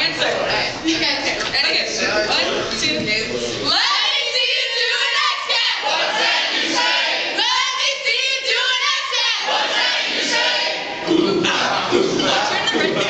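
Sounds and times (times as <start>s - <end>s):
young voices chanting a cheer: 3.7s - 13.0s.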